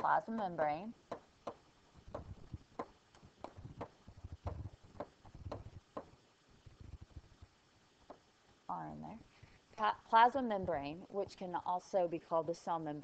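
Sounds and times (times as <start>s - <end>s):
stylus tapping on writing surface: 1.1s - 6.2s.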